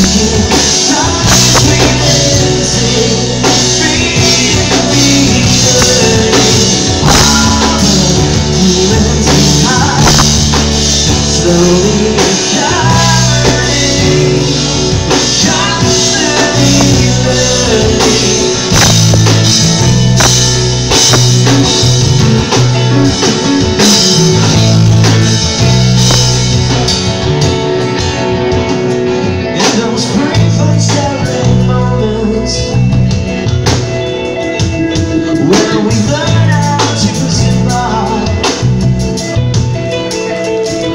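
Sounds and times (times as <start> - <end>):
man singing: 0.0 - 20.3, 29.4 - 39.0
live rock band: 0.0 - 40.9.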